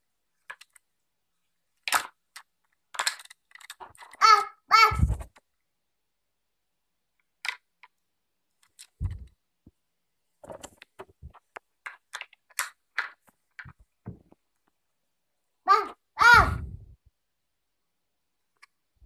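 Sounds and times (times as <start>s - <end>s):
plastic toy parts clicking: 0.4s - 0.9s, 1.8s - 4.2s, 7.2s - 9.4s, 11.5s - 13.8s.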